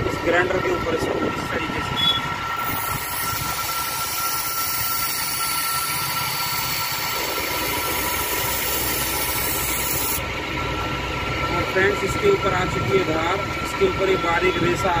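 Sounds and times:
grinding wheel hissing on metal: 0:00.0 - 0:10.3
motor whine: 0:00.0 - 0:15.0.

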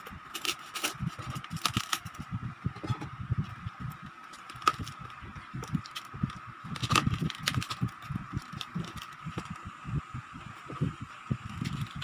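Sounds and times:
faint steady whine: 0:00.0 - 0:12.0
crispy pork skin crackling: 0:00.3 - 0:02.2, 0:04.3 - 0:09.4.

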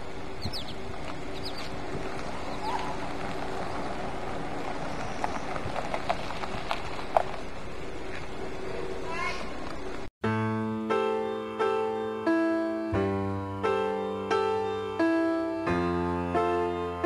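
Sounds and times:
birds chirping: 0:00.0 - 0:10.0
steady hum: 0:00.0 - 0:10.1
footsteps on dirt road: 0:00.7 - 0:10.1.

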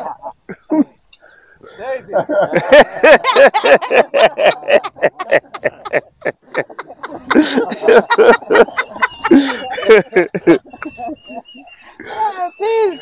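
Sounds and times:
person giggling: 0:02.5 - 0:11.4, 0:12.0 - 0:13.0.

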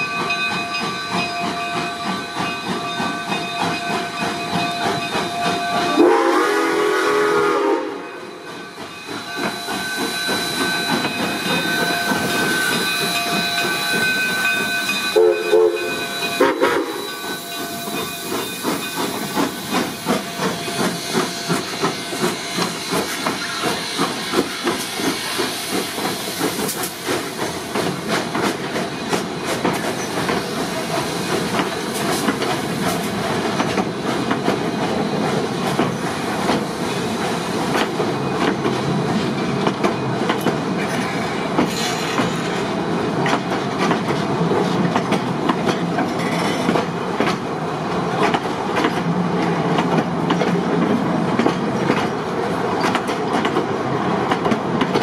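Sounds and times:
steam locomotive chuffing: 0:00.0 - 0:55.0
steam hissing: 0:02.0 - 0:38.8
steam whistle: 0:05.3 - 0:08.3, 0:15.1 - 0:18.1.

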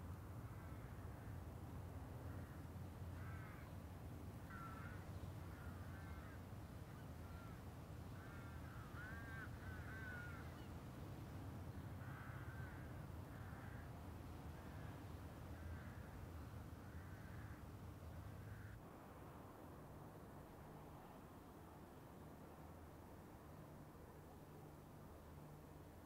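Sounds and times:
crows cawing: 0:00.5 - 0:01.3, 0:02.3 - 0:02.6, 0:03.2 - 0:03.7, 0:04.5 - 0:06.5, 0:07.2 - 0:07.6, 0:08.2 - 0:10.7, 0:11.7 - 0:13.9, 0:14.5 - 0:17.7, 0:18.3 - 0:18.8.

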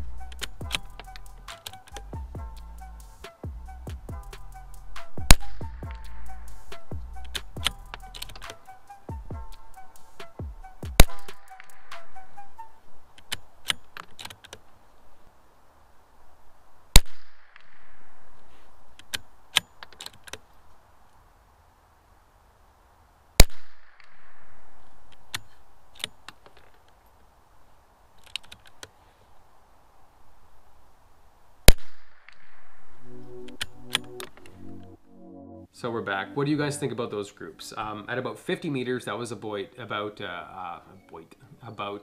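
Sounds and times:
rifle bolt clicks: 0:07.3 - 0:08.6.

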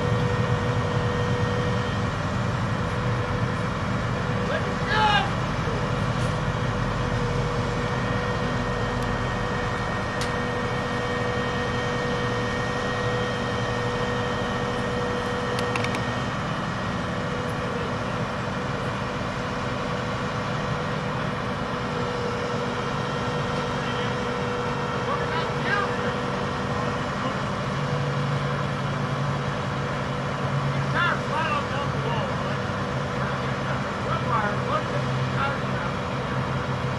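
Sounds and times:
truck engine idling: 0:00.0 - 0:36.9.

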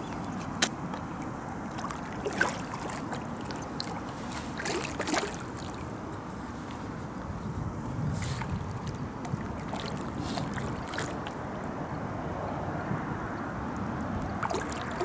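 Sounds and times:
sharp water splashes: 0:00.0 - 0:06.1, 0:08.2 - 0:11.5, 0:14.2 - 0:15.0
water wash: 0:00.0 - 0:06.7, 0:08.1 - 0:11.7, 0:14.2 - 0:15.0.

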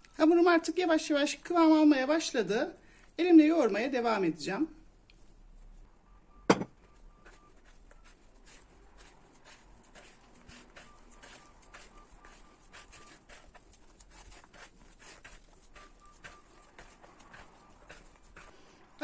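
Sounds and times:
dough squishing and patting: 0:06.8 - 0:19.0.

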